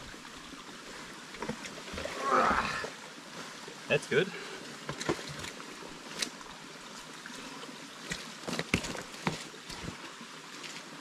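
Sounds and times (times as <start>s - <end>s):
trickle of running water: 0.0s - 11.0s
boots squelching in mud: 8.0s - 10.0s.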